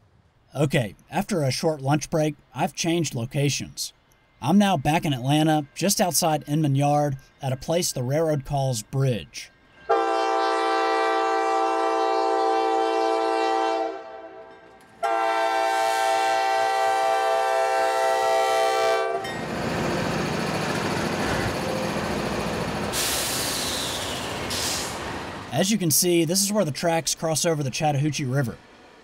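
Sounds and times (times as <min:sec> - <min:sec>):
train horn blasts: 0:09.8 - 0:19.3
train wheels on rails: 0:19.2 - 0:29.0.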